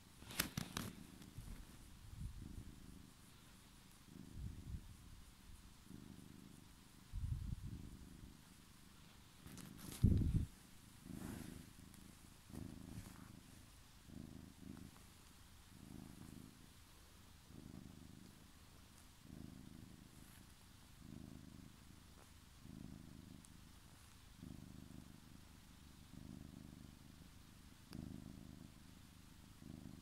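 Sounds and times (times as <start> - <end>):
cat purring: 0.0 - 30.0.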